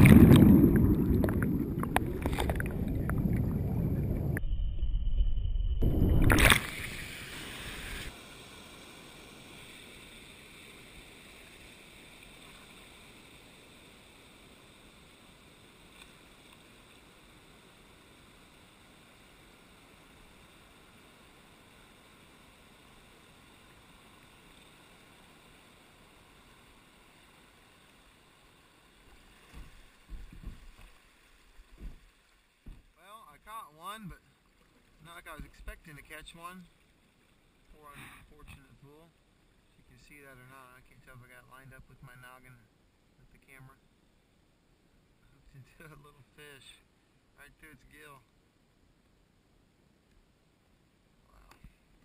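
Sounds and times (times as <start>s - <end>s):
creek water flowing: 0.0s - 4.4s, 5.8s - 48.8s
water splashing over camera: 0.0s - 4.4s, 5.8s - 8.1s
low thumps: 0.0s - 6.9s.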